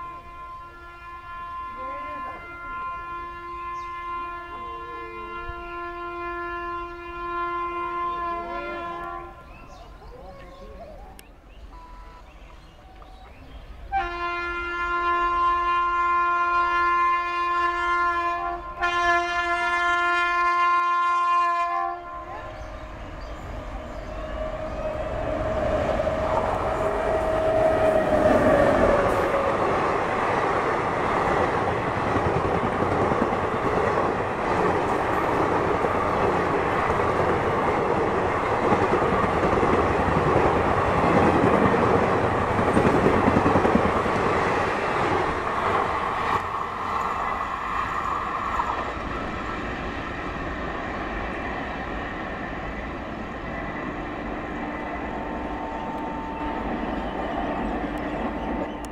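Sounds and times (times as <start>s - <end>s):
train horn blast: 0.0s - 9.6s, 11.8s - 12.3s, 13.9s - 30.4s, 53.7s - 58.0s
locomotive tone sliding down: 22.2s - 58.9s
train coaches clattering over rails: 22.4s - 54.0s.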